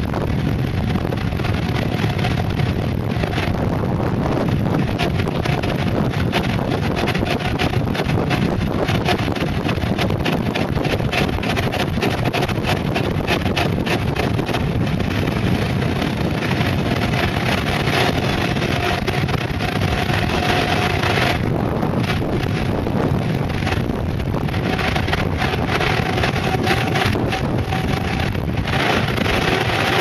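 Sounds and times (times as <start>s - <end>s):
tyres rolling on asphalt: 0.0s - 30.0s
wind buffeting microphone: 0.0s - 30.0s.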